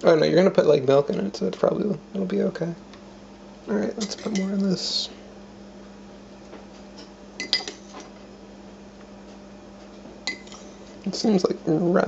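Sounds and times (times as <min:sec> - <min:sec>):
steady low hum: 0:00.0 - 0:12.0
metal spoon clinking on dish: 0:04.0 - 0:04.6, 0:07.0 - 0:08.0, 0:10.3 - 0:10.8.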